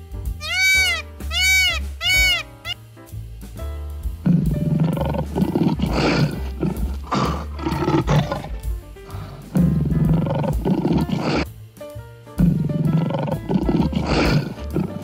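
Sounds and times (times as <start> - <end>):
background music: 0.0 - 15.0
lion roaring: 4.2 - 8.6, 9.5 - 11.5, 12.4 - 15.0.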